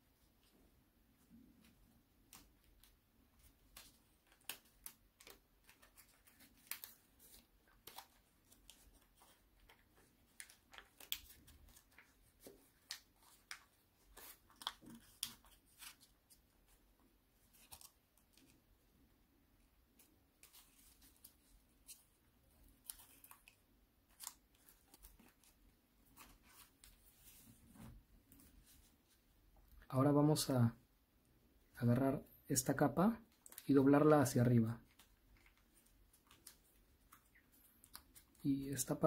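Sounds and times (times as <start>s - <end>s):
paper being folded and creased: 2.2s - 18.6s, 20.0s - 29.2s, 34.8s - 38.4s.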